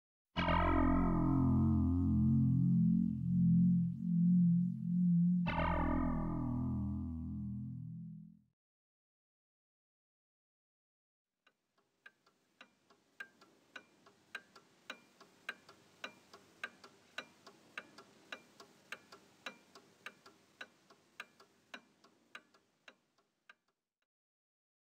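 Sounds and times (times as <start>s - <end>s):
clock ticking: 12.0s - 23.7s.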